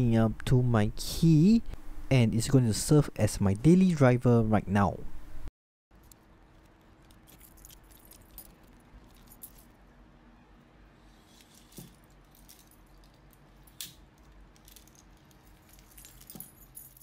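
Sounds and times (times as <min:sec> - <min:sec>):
metal keys jangling: 0:07.0 - 0:09.8, 0:11.4 - 0:17.0.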